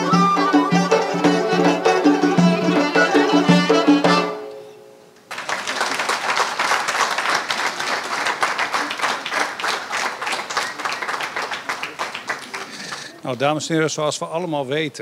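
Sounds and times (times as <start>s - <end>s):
duduks and accordion folk music: 0.0s - 4.9s
audience applause: 5.3s - 13.2s.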